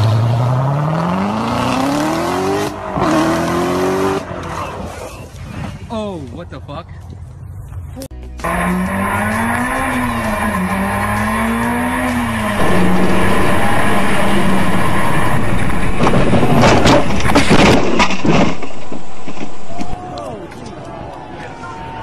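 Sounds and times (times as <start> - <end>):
car engine revving: 0.0 - 4.8, 8.4 - 17.2
car crashing: 8.4 - 20.0
tyres skidding: 8.4 - 21.6.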